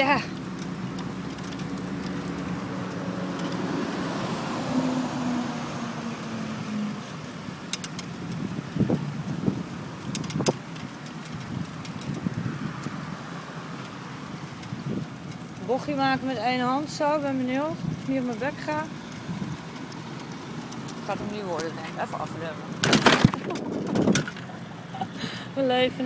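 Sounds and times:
wheels rolling over paving stones: 0.0 - 26.0
sharp clicks and knocks: 0.3 - 3.7, 7.7 - 8.5, 10.0 - 13.0, 22.7 - 24.6.

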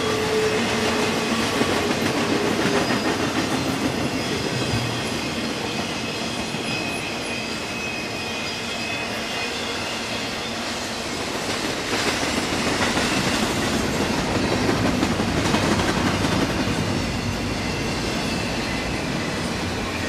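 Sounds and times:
train wheels rumbling on track: 0.0 - 20.0
wheel squeal: 2.4 - 10.8.

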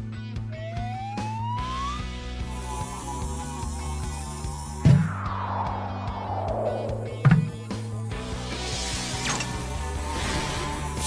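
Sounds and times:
long falling whoosh: 3.8 - 8.4
sharp thud: 6.7 - 7.8.

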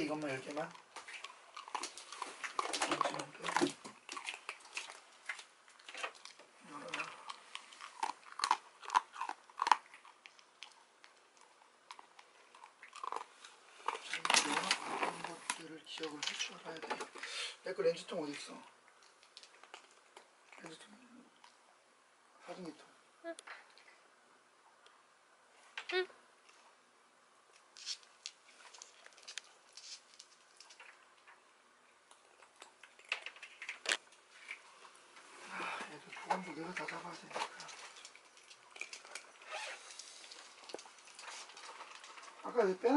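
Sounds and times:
dog crunching dry kibble: 0.0 - 16.5, 19.0 - 20.8, 27.6 - 31.4, 32.1 - 34.8, 36.3 - 42.9.

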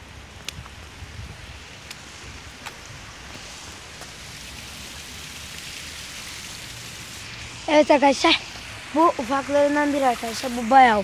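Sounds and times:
steady hiss: 0.0 - 11.0
footsteps on wet slush: 1.9 - 4.9.

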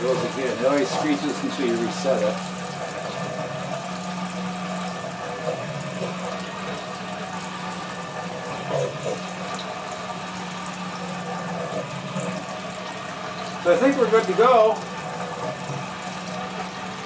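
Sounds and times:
sump pump motor hum: 0.0 - 17.0
water churning: 0.0 - 17.0.

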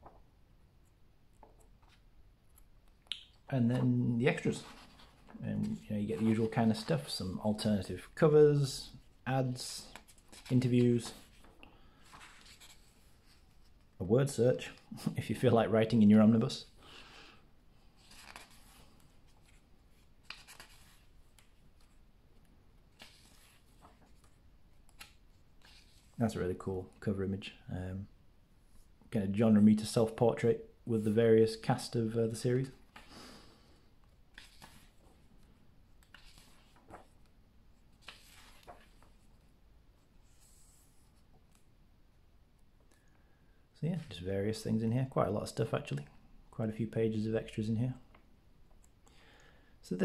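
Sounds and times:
book pages turning: 3.8 - 7.8, 9.8 - 13.9, 17.9 - 26.2, 34.1 - 39.5.

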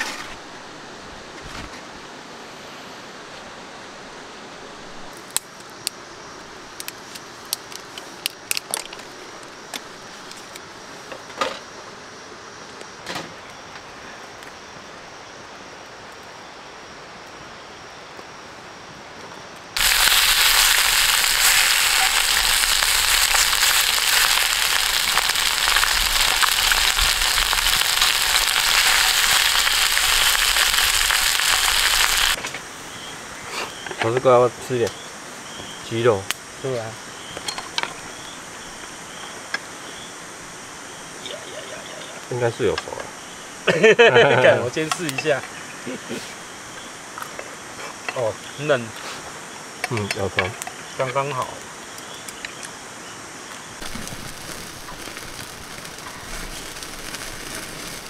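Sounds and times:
wood fire crackling: 4.8 - 11.2, 18.1 - 43.0, 53.5 - 58.0.

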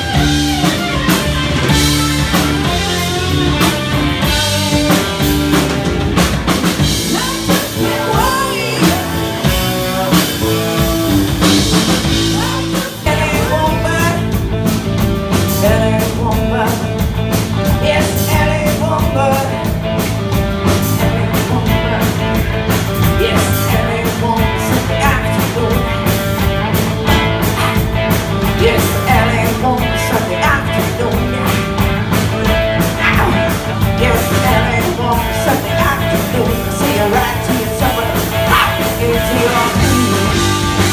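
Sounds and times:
bass guitar: 0.0 - 40.9
drum kit: 0.0 - 40.9
electric guitar: 0.0 - 40.9
woman singing: 7.0 - 10.5, 12.2 - 14.3, 15.5 - 17.1, 17.7 - 19.8, 20.8 - 22.2, 23.0 - 26.0, 28.4 - 31.9, 33.0 - 40.6.

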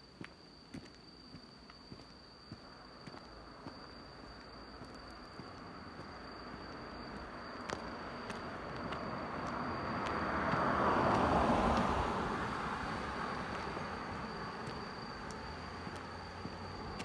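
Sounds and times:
vehicle passing by: 8.4 - 17.0.

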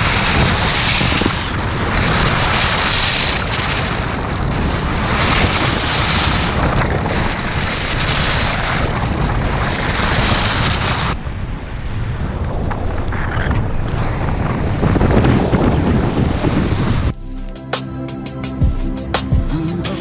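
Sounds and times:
skis scraping snow: 0.0 - 11.2
wind rumble on microphone: 0.0 - 17.5.

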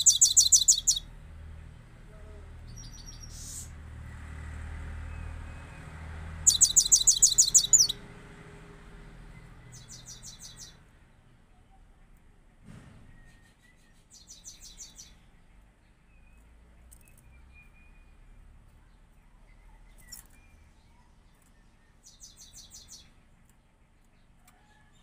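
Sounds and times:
bird trills: 0.0 - 1.1, 6.4 - 8.0
goldfinch singing: 0.0 - 1.1, 6.4 - 8.0.

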